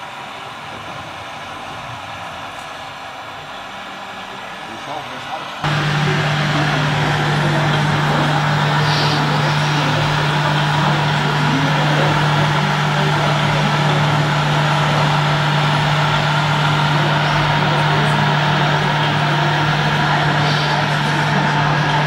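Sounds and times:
indoor hall background noise: 0.0s - 22.0s
toy truck engine sound idling: 5.6s - 22.0s.

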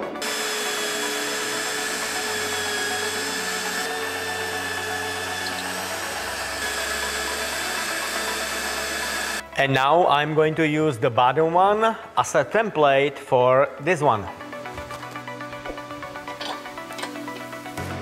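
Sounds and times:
drill press boring through steel: 0.0s - 9.4s.

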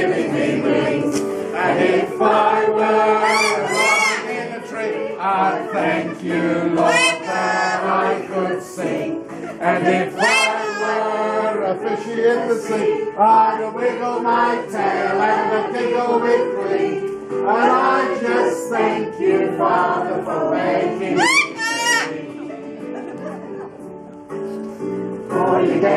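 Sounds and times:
congregation singing a hymn: 0.0s - 23.7s, 25.2s - 25.9s
high rising calls: 3.1s - 4.5s.

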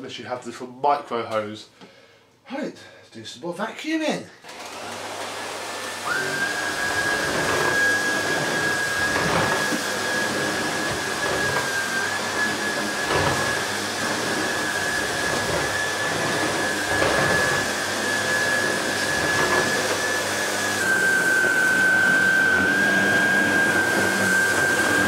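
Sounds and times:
vacuum cleaner motor whine: 4.4s - 25.0s
floor head swishing on carpet: 7.1s - 25.0s.

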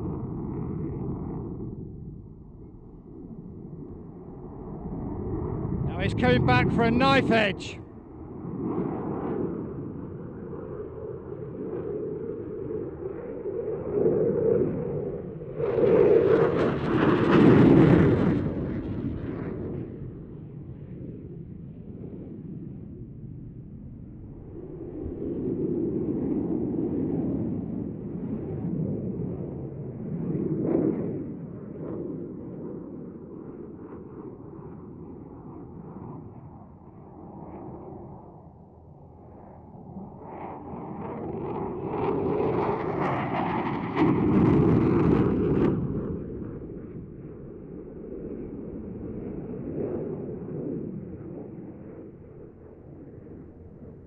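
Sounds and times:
jet aircraft rumble: 0.0s - 7.8s, 31.8s - 51.5s.

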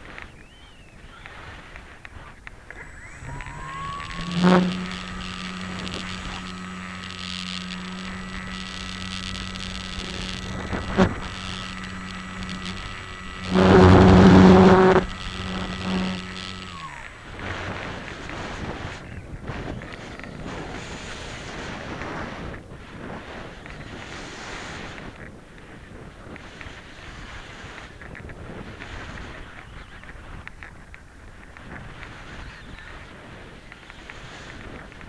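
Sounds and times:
sharp clicks: 0.0s - 20.3s
electric motor and propeller whining: 0.0s - 30.7s.

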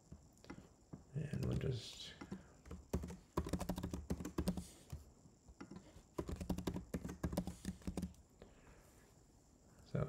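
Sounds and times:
typing on computer keyboard: 2.2s - 5.0s, 5.6s - 8.2s.

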